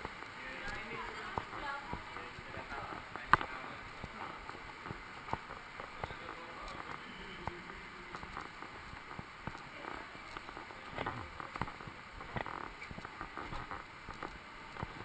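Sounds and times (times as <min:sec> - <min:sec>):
footsteps on walkway: 0:00.0 - 0:15.0
steady hiss: 0:00.0 - 0:15.0.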